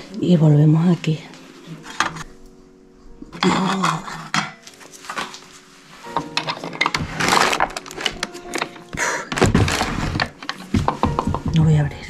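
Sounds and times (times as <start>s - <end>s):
faint background music: 0.0s - 12.0s
wooden drawer scraping open: 6.1s - 11.4s
objects clicking and knocking: 6.1s - 11.6s.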